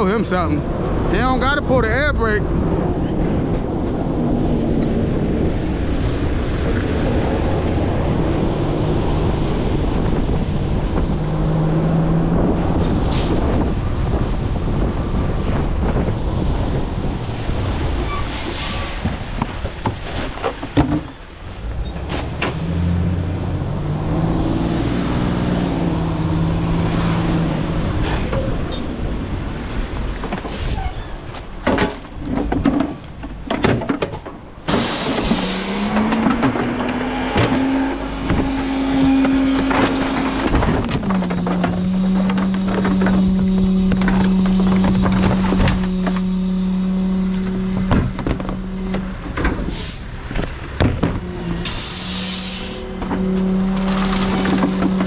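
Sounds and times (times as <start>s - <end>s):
garbage truck engine revving: 0.0s - 32.3s, 34.3s - 55.0s
metal clanks and knocks: 31.3s - 46.3s
air hiss: 51.6s - 52.8s.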